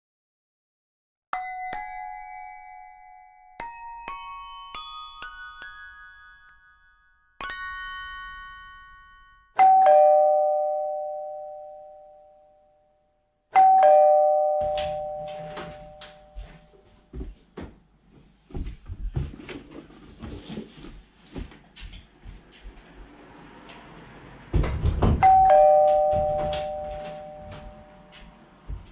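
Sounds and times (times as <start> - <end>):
two-tone doorbell chime: 1.4 - 16.9, 25.2 - 28.9.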